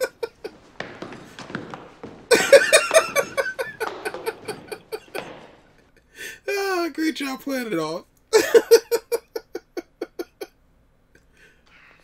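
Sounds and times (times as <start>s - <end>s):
sharp taps and knocks: 0.0s - 5.9s
man laughing hard: 2.3s - 5.6s, 8.4s - 10.5s.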